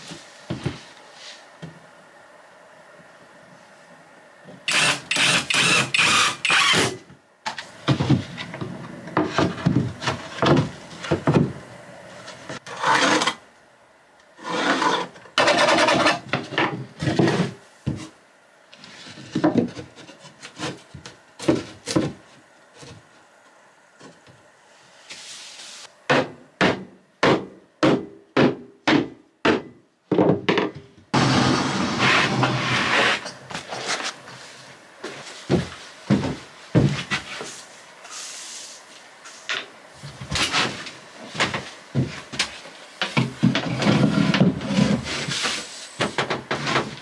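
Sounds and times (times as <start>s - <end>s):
boards scraping against floor: 12.2s - 13.4s, 14.4s - 18.1s, 31.2s - 38.3s, 40.3s - 47.0s.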